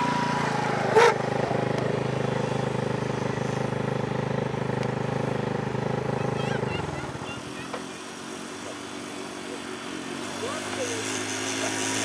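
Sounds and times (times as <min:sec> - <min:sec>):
quad bike engine running: 0:00.0 - 0:12.0.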